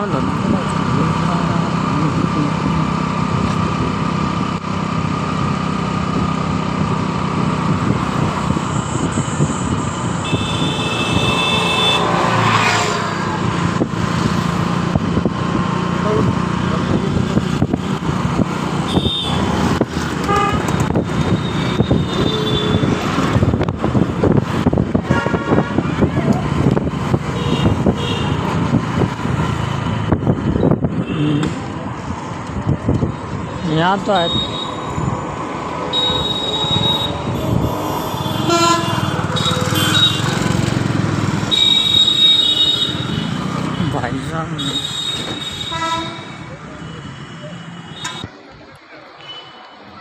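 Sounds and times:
motorcycle engine hum: 0:00.0 - 0:48.8
traffic noise: 0:00.0 - 0:50.0
wind: 0:00.0 - 0:50.0
vehicle horn honking: 0:10.2 - 0:12.1, 0:18.9 - 0:19.4, 0:20.2 - 0:20.6, 0:35.9 - 0:37.2, 0:38.2 - 0:40.4, 0:44.6 - 0:46.4.

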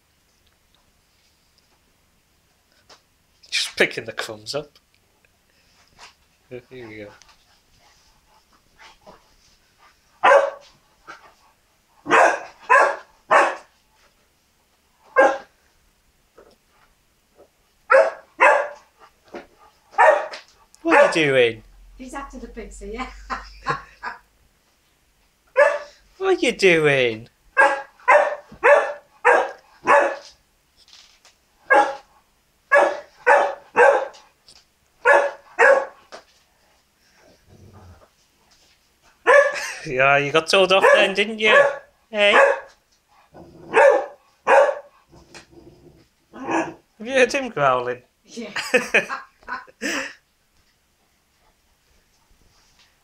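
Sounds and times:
puppy barking: 0:10.2 - 0:10.7, 0:12.1 - 0:13.7, 0:15.1 - 0:15.5, 0:17.9 - 0:18.9, 0:19.9 - 0:21.2, 0:25.5 - 0:26.0, 0:27.6 - 0:30.3, 0:31.7 - 0:32.1, 0:32.7 - 0:34.2, 0:35.0 - 0:36.0, 0:39.2 - 0:39.6, 0:40.8 - 0:42.8, 0:43.7 - 0:44.9, 0:46.4 - 0:46.8.

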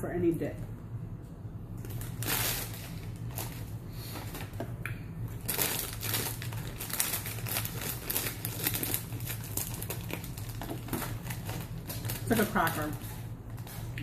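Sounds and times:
plastic snack bag crinkling: 0:01.8 - 0:04.6, 0:05.3 - 0:14.0
scissors cutting plastic bag: 0:05.4 - 0:13.0.

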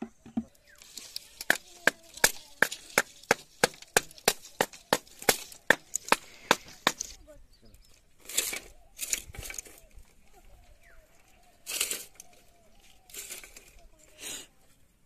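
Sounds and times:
blade chopping bamboo: 0:01.1 - 0:07.2.

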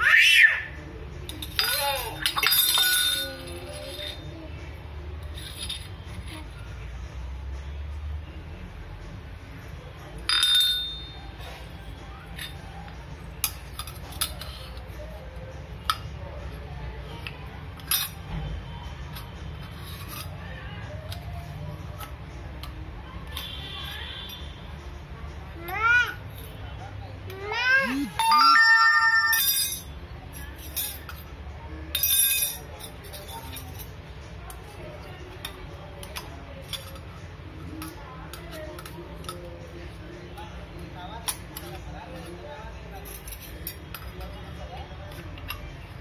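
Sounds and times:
metal tumbler and spoons clinking: 0:01.2 - 0:04.6, 0:05.2 - 0:06.5, 0:10.2 - 0:16.2, 0:17.1 - 0:18.4, 0:27.9 - 0:39.9, 0:41.1 - 0:46.0.

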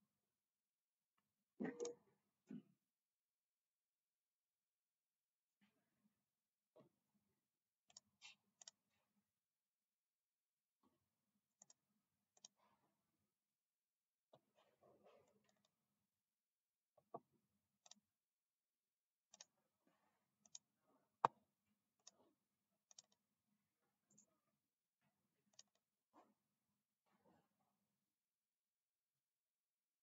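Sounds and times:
computer mouse clicking: 0:07.8 - 0:08.8, 0:12.4 - 0:12.6, 0:17.8 - 0:18.0, 0:19.3 - 0:19.6, 0:20.4 - 0:21.4, 0:22.0 - 0:22.2, 0:22.9 - 0:23.2, 0:25.5 - 0:25.9.

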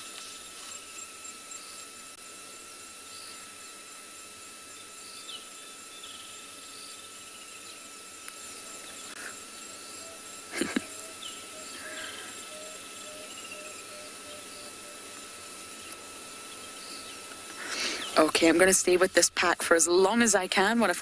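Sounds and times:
insect chorus buzzing: 0:00.0 - 0:21.0.

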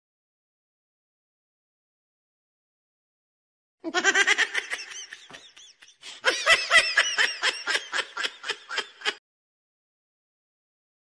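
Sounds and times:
high-pitched rapid laugh: 0:03.9 - 0:09.2.

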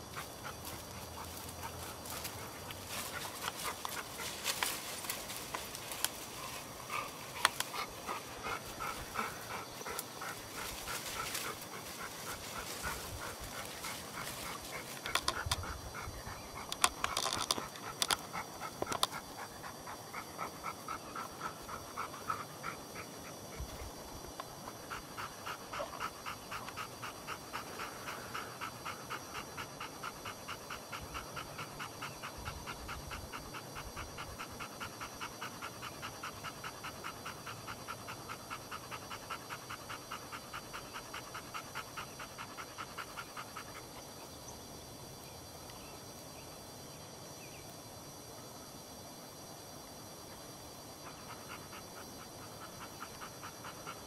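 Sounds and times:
dog panting: 0:00.0 - 0:44.4, 0:50.2 - 0:54.0.

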